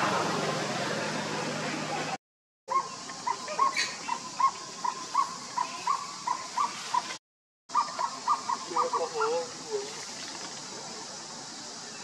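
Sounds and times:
animal chirping calls: 0:02.7 - 0:07.1, 0:07.7 - 0:09.5.

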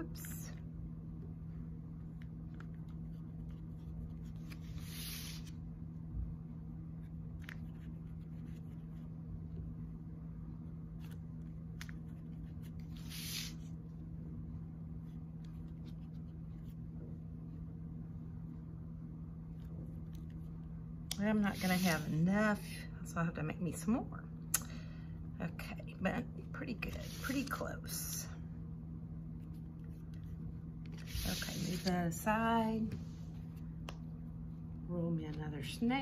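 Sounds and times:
low room hum: 0:00.0 - 0:36.0
clay scraping rustles: 0:29.4 - 0:34.0.

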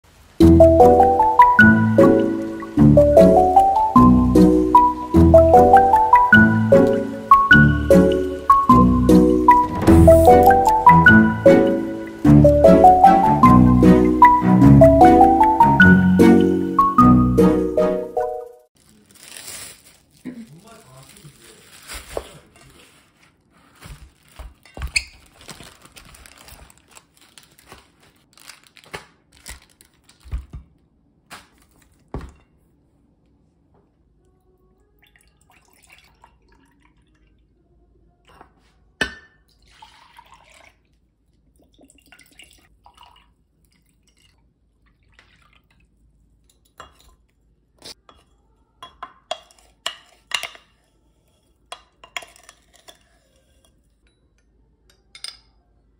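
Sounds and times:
sauce pouring: 0:00.4 - 0:14.8, 0:39.5 - 0:46.0
plastic bag rustling: 0:18.8 - 0:30.6, 0:31.3 - 0:32.2.

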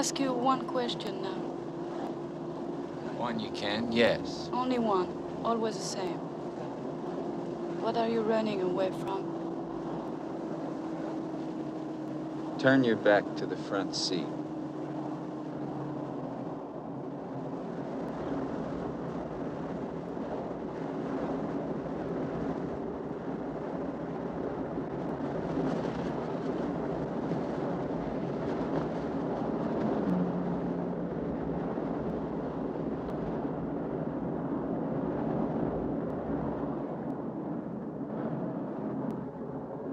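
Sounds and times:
wind rushing: 0:24.9 - 0:33.8.

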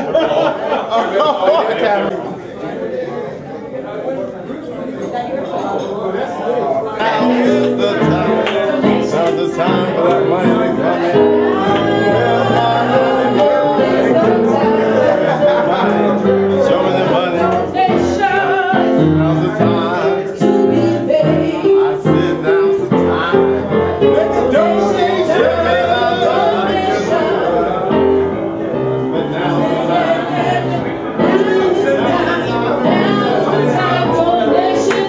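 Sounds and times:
man singing: 0:07.0 - 0:28.2, 0:29.1 - 0:35.0
piano accompaniment: 0:07.0 - 0:35.0.

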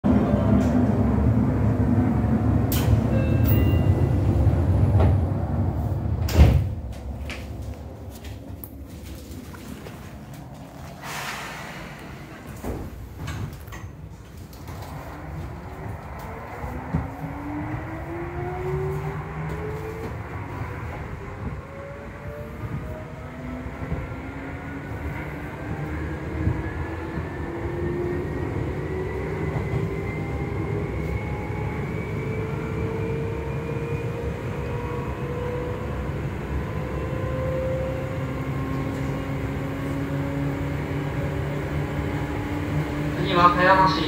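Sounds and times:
wheels rumbling on rail: 0:00.0 - 0:44.0
train doors sliding shut: 0:02.5 - 0:07.6, 0:10.4 - 0:17.4.

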